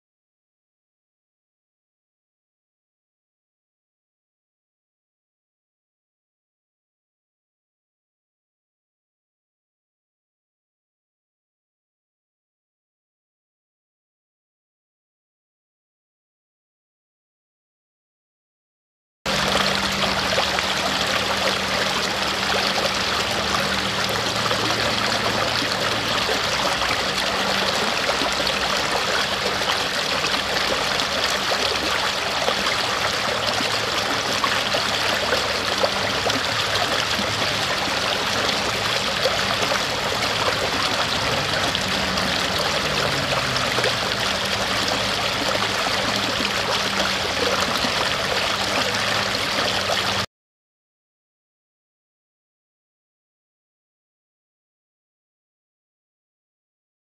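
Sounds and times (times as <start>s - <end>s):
stream rushing over rocks: 19.3s - 50.2s.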